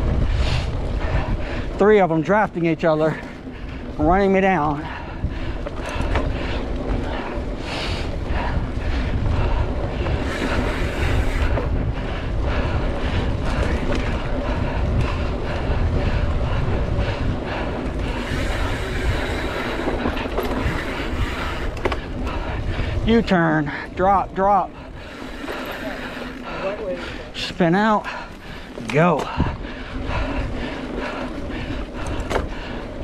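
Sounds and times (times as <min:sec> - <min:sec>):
bike rattling over bumps: 0:00.0 - 0:33.0
bike tyres rumbling on dirt: 0:00.0 - 0:33.0
wind buffeting microphone: 0:00.0 - 0:33.0.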